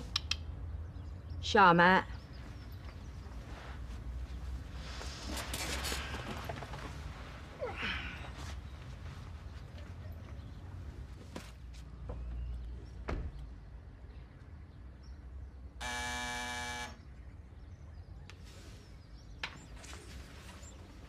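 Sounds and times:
electric door buzzer: 15.8s - 17.0s.

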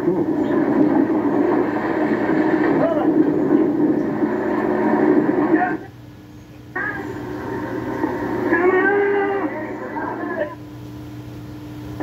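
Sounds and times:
low steady hum: 0.0s - 12.0s
indistinct voices: 6.7s - 10.6s.

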